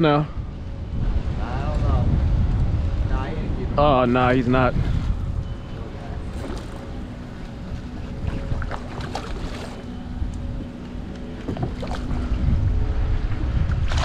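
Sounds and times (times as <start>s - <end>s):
faint steady hum: 0.0s - 14.0s
wind on microphone: 0.2s - 10.8s, 11.4s - 14.0s
fish splashing in water: 8.2s - 9.9s.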